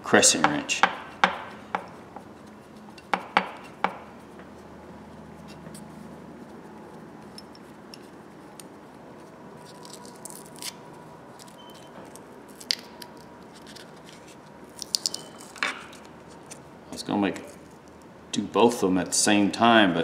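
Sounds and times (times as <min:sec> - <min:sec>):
masking tape peeling: 0:08.4 - 0:16.6.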